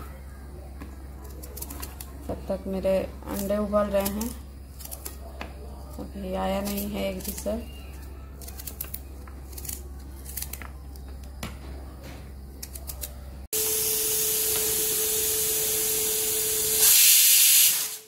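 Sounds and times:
knife slicing shallots: 1.2 - 2.2, 3.3 - 11.4, 12.6 - 13.2
pressure cooker steam hissing: 13.6 - 18.0.

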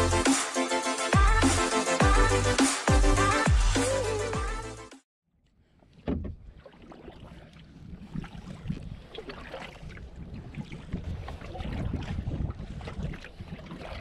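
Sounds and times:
wind: 5.3 - 14.0
water noise: 5.7 - 14.0.

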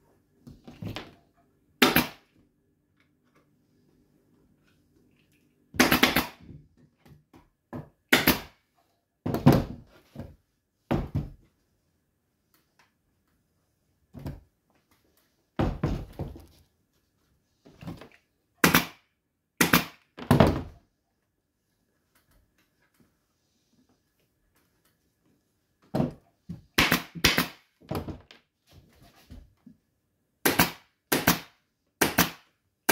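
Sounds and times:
wooden chair knocks and thuds: 9.2 - 11.4, 15.6 - 16.5, 25.9 - 26.7.

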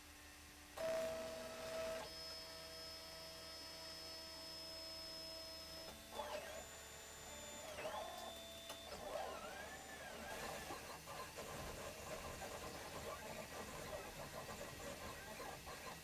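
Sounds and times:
stepper motors whining: 5.8 - 11.7.

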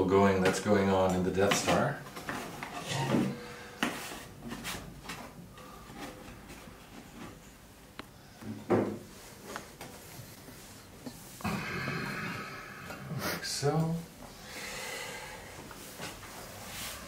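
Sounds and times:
hands tapping and scraping metal panels: 0.3 - 7.5
short low vocal sound: 11.4 - 13.4.

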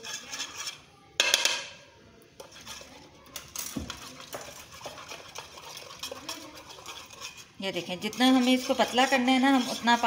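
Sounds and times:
metal spoon clinking in a bowl: 2.4 - 10.0.

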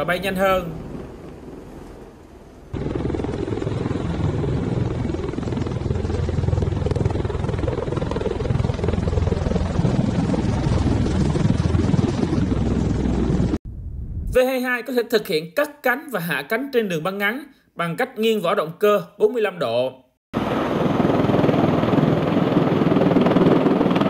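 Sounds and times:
deep aircraft rotor rumble: 0.8 - 14.3, 20.4 - 24.0.

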